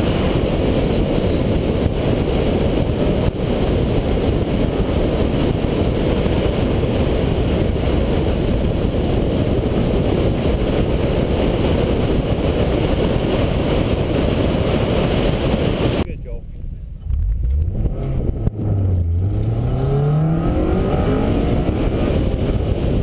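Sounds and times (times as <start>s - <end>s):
wind and road noise: 0.0s - 23.0s.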